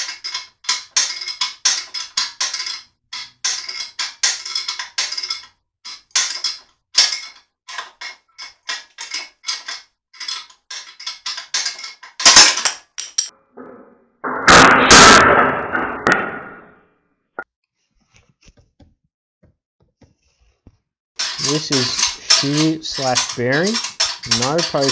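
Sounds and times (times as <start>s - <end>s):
metal fittings crashing clatter: 0.0s - 13.3s, 21.2s - 24.9s
sharp crack: 14.5s - 16.3s
evenly spaced clicks: 21.2s - 24.9s.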